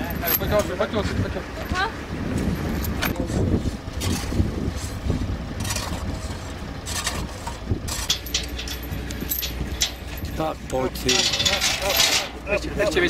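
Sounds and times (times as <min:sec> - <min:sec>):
engine idling: 0:00.0 - 0:13.0
shovel digging dry sand: 0:03.2 - 0:08.2.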